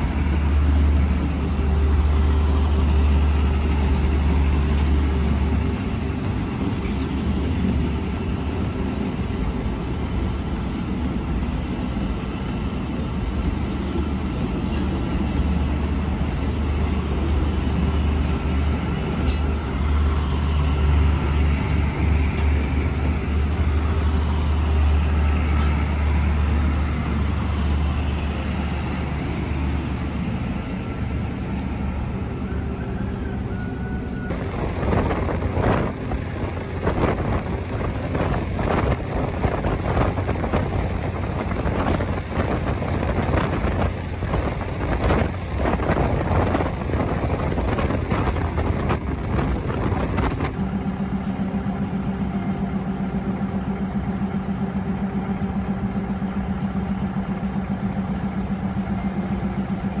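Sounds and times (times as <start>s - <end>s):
diesel engine idling: 0.0s - 60.0s
train rushing and clattering: 0.0s - 60.0s.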